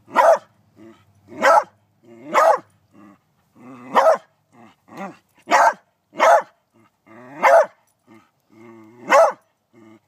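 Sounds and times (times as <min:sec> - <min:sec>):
dog barking: 0:00.1 - 0:00.5, 0:01.4 - 0:02.7, 0:03.9 - 0:04.3, 0:05.5 - 0:06.6, 0:07.4 - 0:07.8, 0:09.1 - 0:09.4.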